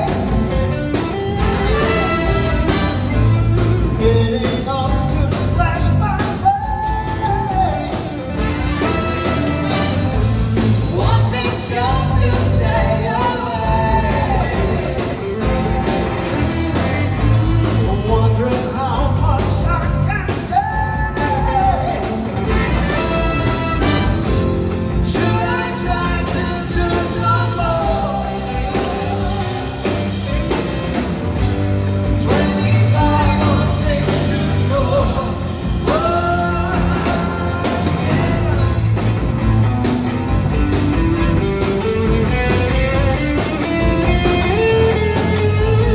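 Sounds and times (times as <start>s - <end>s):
live rock band with horns: 0.0s - 45.9s
steady drum beat: 0.0s - 45.9s
person singing: 10.8s - 22.4s, 25.1s - 30.4s, 32.0s - 39.1s.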